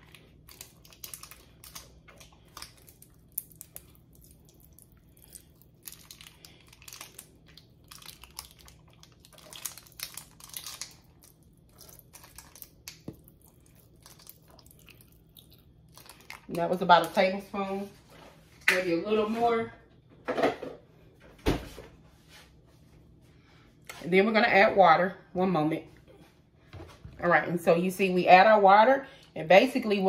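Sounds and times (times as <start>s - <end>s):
plastic squeeze bottle crinkling: 0.0s - 15.0s.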